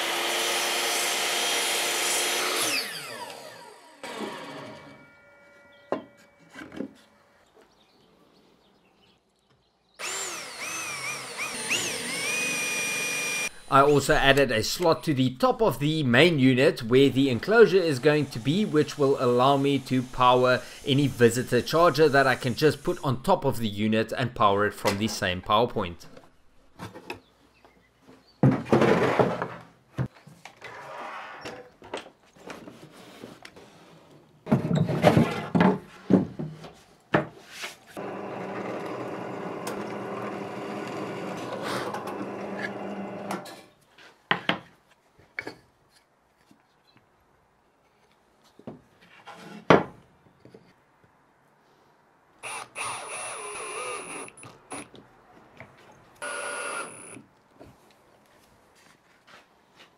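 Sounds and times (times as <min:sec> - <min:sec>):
miter saw cutting: 0:00.0 - 0:05.3, 0:10.0 - 0:14.4, 0:17.5 - 0:23.1, 0:38.0 - 0:43.5, 0:52.4 - 0:54.9, 0:56.2 - 0:57.2
drill press motor running: 0:10.0 - 0:13.7, 0:38.0 - 0:43.4, 0:56.2 - 0:57.2
cordless drill driving screw: 0:10.0 - 0:13.8, 0:52.4 - 0:54.9, 0:56.2 - 0:57.2.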